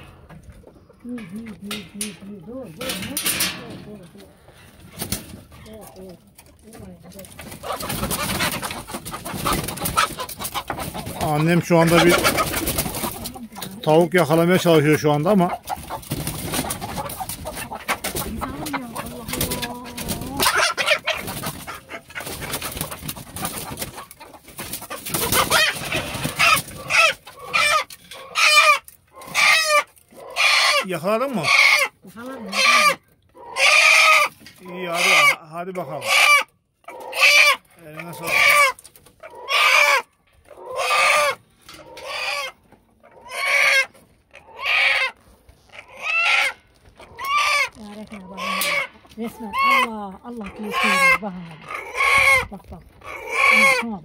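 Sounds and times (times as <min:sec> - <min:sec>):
chickens clucking and squawking: 0:00.0 - 0:54.0
rustling and knocking in coop: 0:01.8 - 0:13.8, 0:14.9 - 0:29.9.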